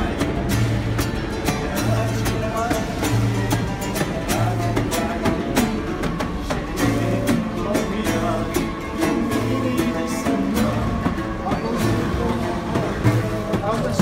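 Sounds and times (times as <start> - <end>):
acoustic guitars strumming: 0.0 - 14.0
man singing: 0.0 - 14.0.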